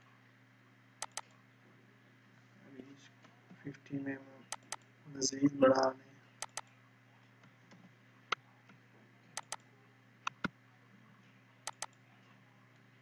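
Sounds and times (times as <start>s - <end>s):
faint low hum: 0.0s - 13.0s
mouse and keyboard clicks: 1.0s - 1.3s, 4.5s - 4.8s, 6.4s - 6.7s, 9.4s - 9.6s, 10.3s - 10.5s, 11.6s - 12.0s.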